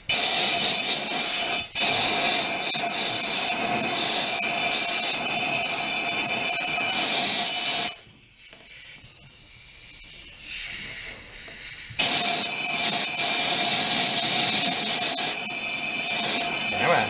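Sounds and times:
compressed air hissing: 10.2 - 17.0.

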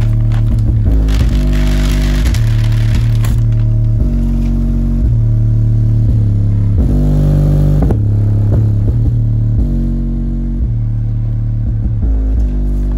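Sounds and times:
deep bass line from woofer: 0.0 - 12.9.

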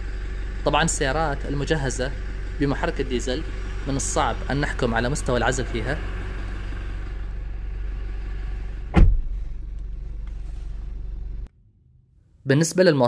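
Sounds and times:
diesel engine idling: 0.0 - 11.5
car door shutting: 8.9 - 11.2.

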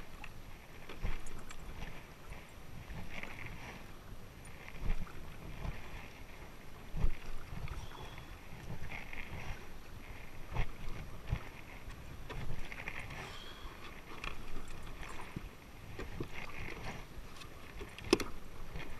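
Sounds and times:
wind rumble on microphone: 0.0 - 18.9
paddle splashing in water: 4.5 - 18.9.

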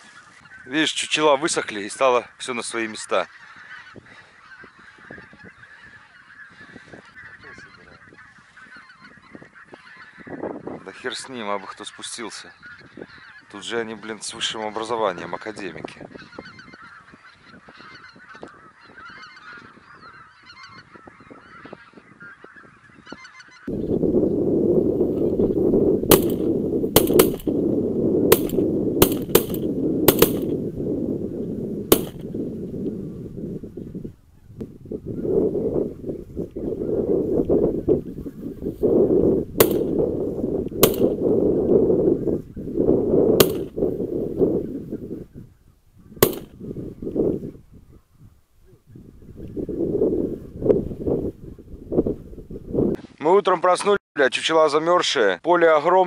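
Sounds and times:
geese honking: 0.0 - 23.9, 26.1 - 27.5
wind buffeting microphone: 3.5 - 11.2, 12.5 - 13.5, 15.2 - 53.0
sharp cracks: 26.1 - 27.6, 28.3 - 30.6, 31.9 - 32.3, 39.6 - 40.1, 40.8 - 41.3, 43.4 - 43.8, 46.2 - 46.6.

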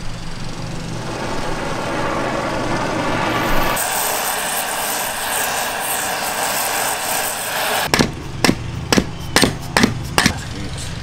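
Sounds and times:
steady rushing hiss: 0.0 - 8.4.

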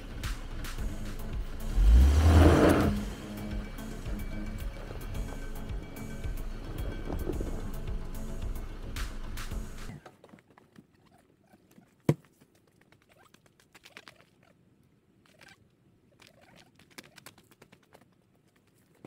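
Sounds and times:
background music: 0.0 - 10.0.

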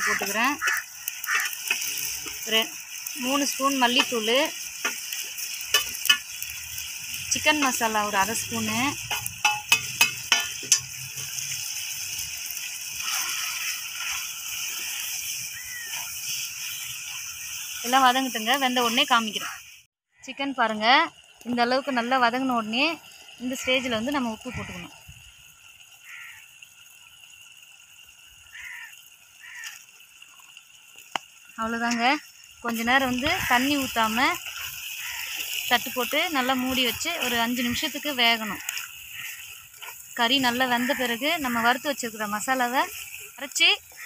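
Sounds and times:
bird cawing: 0.0 - 2.1, 12.9 - 16.3, 19.4 - 20.4, 23.4 - 25.0, 26.0 - 26.6, 28.4 - 30.0, 33.2 - 37.7, 38.3 - 41.9, 43.8 - 44.0
faint outdoor background: 0.0 - 44.0
metal spoon knocking: 9.1 - 10.9.

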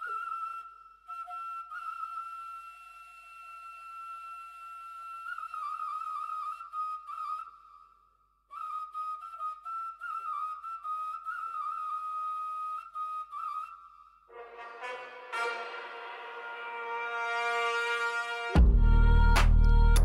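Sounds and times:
solo flute melody with trills: 0.0 - 19.9.

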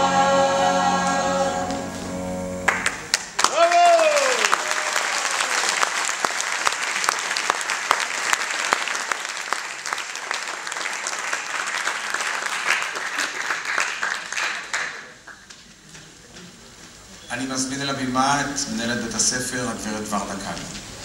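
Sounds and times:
audience applauding: 2.6 - 15.6.

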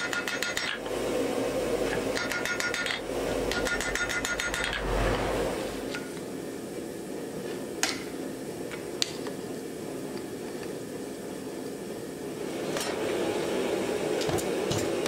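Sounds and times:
steady low hum: 0.0 - 15.0
hammer blows on iron on anvil: 2.1 - 4.9.

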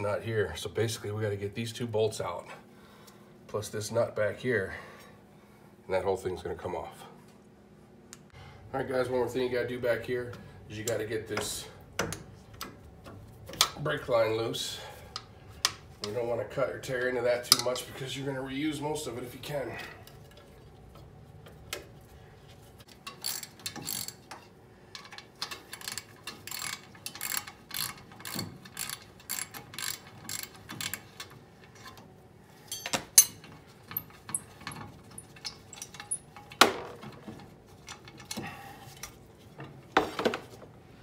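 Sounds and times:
ratchet wrench clicking: 23.0 - 24.4, 25.0 - 31.4.

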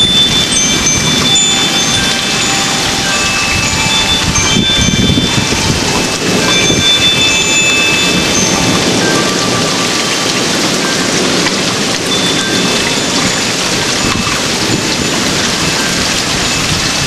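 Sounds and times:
high ringing notes: 0.0 - 16.8
heavy rain: 0.0 - 17.0
rolling thunder: 0.0 - 17.0.

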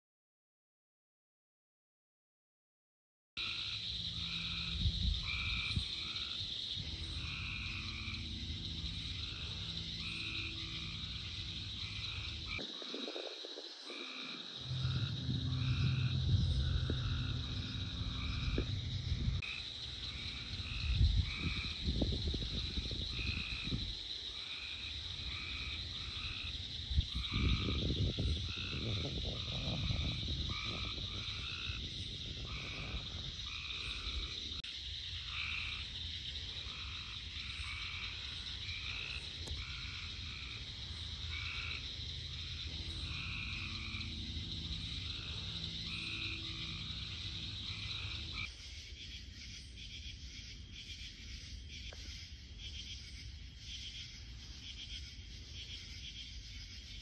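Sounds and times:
frogs calling: 3.4 - 57.0
low rumbling noise: 3.8 - 24.0, 25.4 - 34.6, 37.5 - 48.5
high-pitched drone: 13.9 - 19.5, 42.6 - 48.4.

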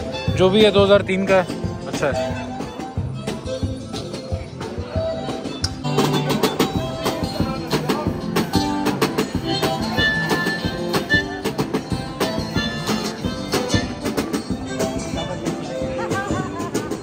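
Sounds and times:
acoustic guitar strumming: 0.0 - 17.0.

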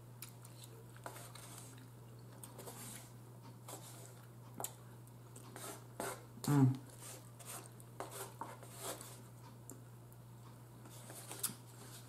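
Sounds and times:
quiet chewing: 0.2 - 5.6.

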